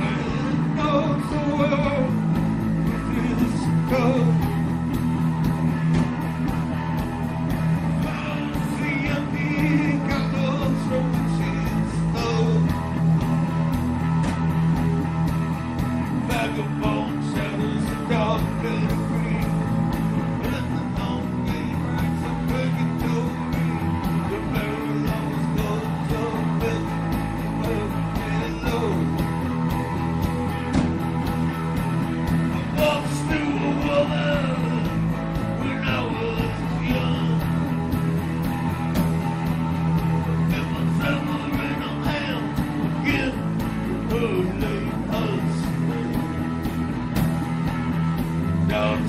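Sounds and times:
person singing: 0.0 - 4.6, 7.8 - 13.0, 16.2 - 19.7, 20.3 - 29.3, 32.5 - 38.0, 40.0 - 46.4, 48.6 - 49.0
live rock band playing: 0.0 - 49.0.

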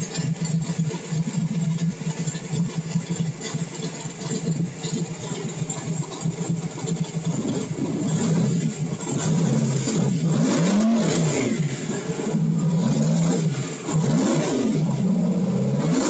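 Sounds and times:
engine idling and revving: 0.0 - 16.0.

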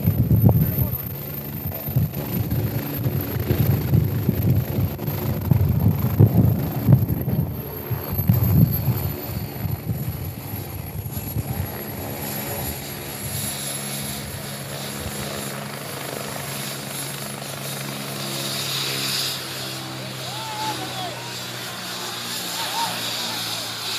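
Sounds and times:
wind on microphone: 0.0 - 15.4
helicopter rotor hum: 0.0 - 23.9.

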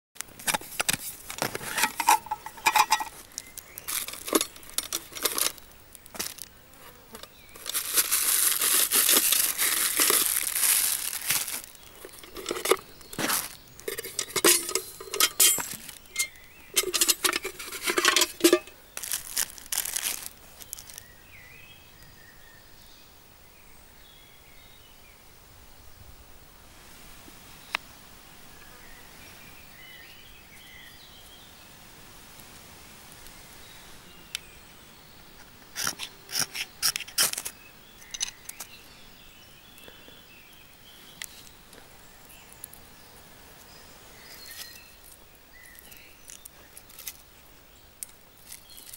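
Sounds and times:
faint outdoor background: 0.2 - 48.9
plastic wrapping crinkling: 0.4 - 6.5, 7.2 - 21.0
metal lid clinking against pot: 1.7 - 3.2, 13.8 - 18.8.

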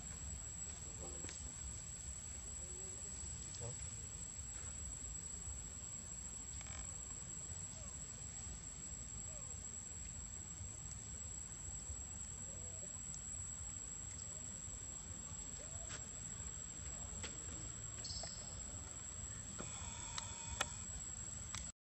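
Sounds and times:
high-pitched insect drone: 6.4 - 7.9, 17.9 - 21.6
faint distant calls: 13.8 - 21.5.

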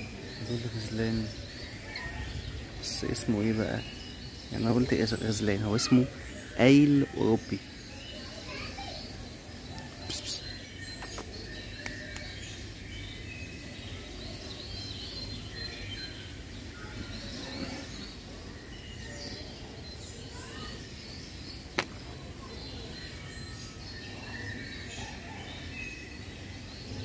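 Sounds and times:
outdoor background noise: 0.0 - 27.0
small birds chirping: 0.0 - 27.0
sharp click: 21.8 - 22.0.

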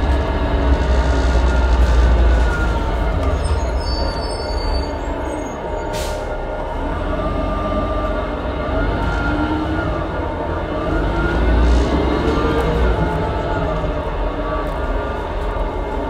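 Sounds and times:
bus engine rumbling: 0.0 - 16.0
brief air hiss: 5.9 - 6.3.

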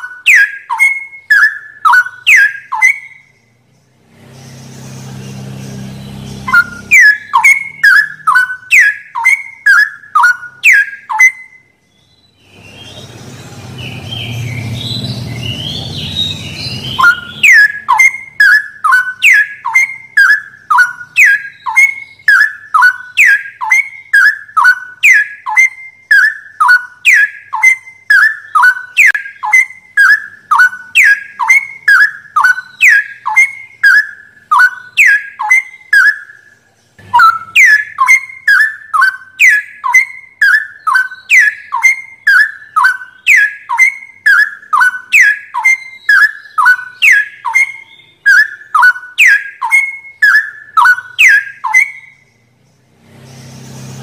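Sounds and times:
bird whistling song: 0.0 - 54.0
low rumbling noise: 12.4 - 17.4.

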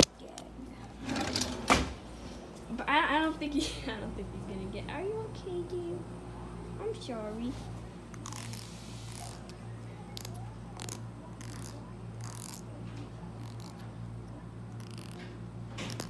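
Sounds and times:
steady low hum: 0.0 - 16.0
fingernail rasping on comb: 8.1 - 9.6, 10.2 - 12.7, 13.4 - 13.8, 14.7 - 15.3.

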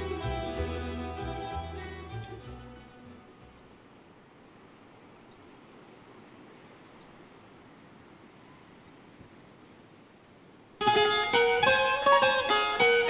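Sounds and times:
plucked string music: 0.0 - 3.5, 10.8 - 13.0
bird chirping: 3.4 - 3.8, 5.2 - 5.6, 6.9 - 7.2, 8.7 - 9.2.

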